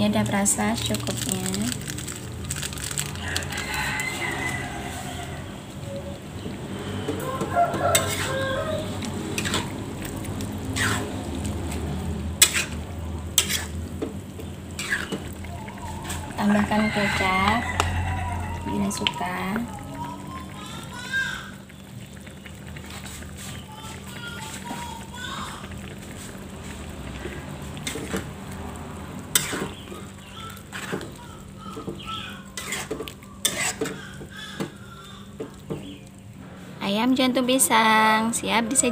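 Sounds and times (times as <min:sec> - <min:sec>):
coconut milk simmering: 0:00.0 - 0:38.9
spatula scraping a wok: 0:06.8 - 0:10.0, 0:10.6 - 0:11.8, 0:12.4 - 0:13.9, 0:14.7 - 0:15.4, 0:27.2 - 0:28.4, 0:29.2 - 0:31.2, 0:32.4 - 0:34.1
chickens clucking: 0:14.8 - 0:20.7.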